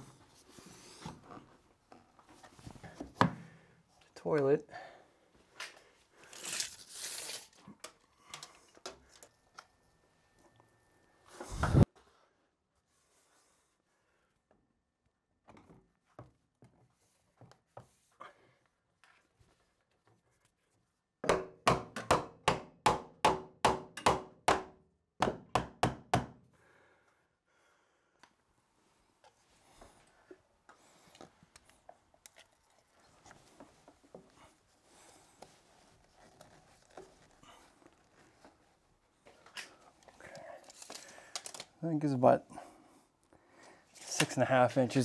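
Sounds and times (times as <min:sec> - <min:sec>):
hammer striking nails into wood: 0:21.2 - 0:26.4.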